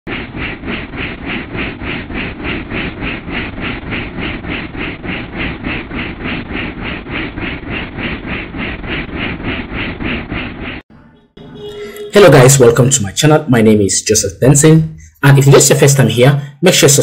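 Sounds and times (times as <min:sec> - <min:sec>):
helicopter rotor beat: 0:00.1 - 0:10.8.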